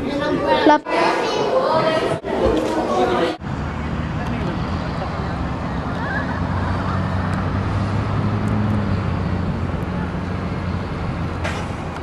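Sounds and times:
engine running with low drone: 3.4s - 12.0s
road traffic hiss: 3.4s - 12.0s.

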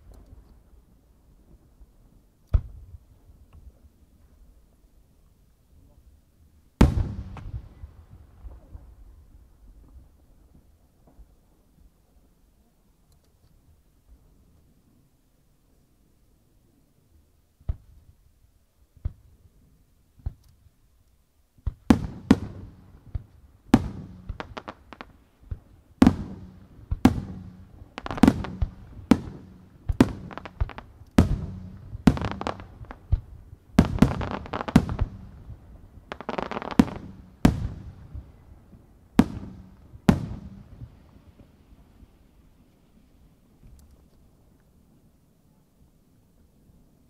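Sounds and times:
fireworks bursting with echo: 6.8s - 9.1s, 21.6s - 42.4s.

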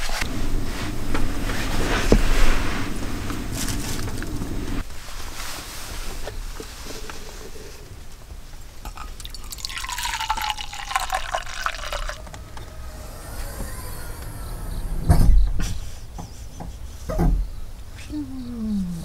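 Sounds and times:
liquid poured into a mug: 8.9s - 12.2s.

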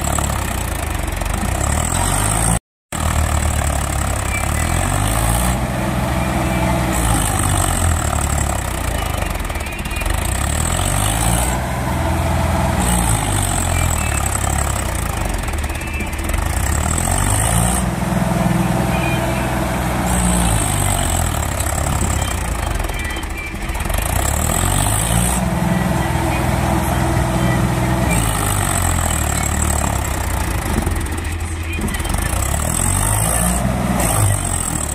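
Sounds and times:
tractor diesel engine revving: 0.0s - 34.9s.

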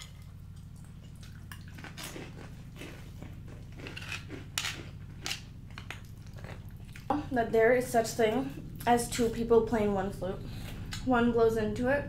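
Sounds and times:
crunching and chewing snacks: 0.0s - 7.1s
steady low hum: 0.0s - 12.0s.

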